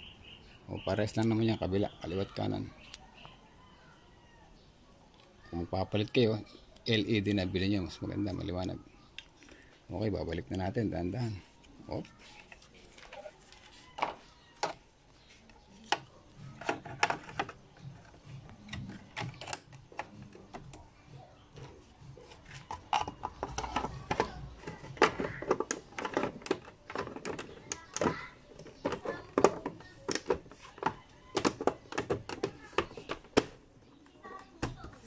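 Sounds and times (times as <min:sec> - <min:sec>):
plastic clicks and knocks: 0:15.8 - 0:20.8, 0:22.6 - 0:33.6.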